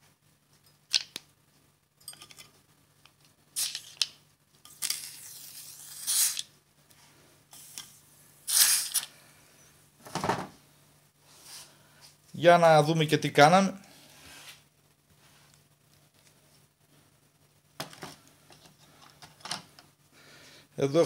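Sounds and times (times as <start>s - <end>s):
metal pieces clinking in plastic bowl: 2.0s - 2.5s.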